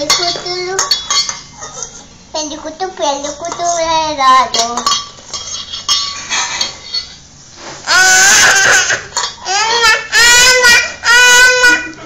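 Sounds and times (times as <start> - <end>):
child's voice: 0.0 - 0.9, 2.3 - 4.9
small dishes and utensils clinking: 0.0 - 2.1, 3.1 - 7.2, 8.6 - 9.8.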